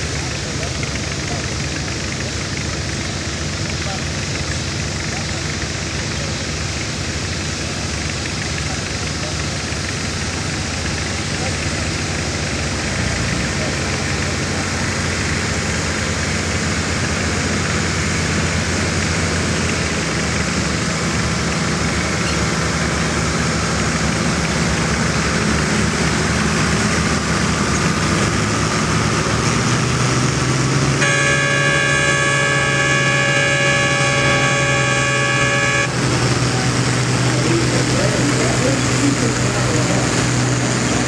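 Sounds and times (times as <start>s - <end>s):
tractor engine under load: 0.0s - 41.0s
horn steady note: 31.0s - 36.7s.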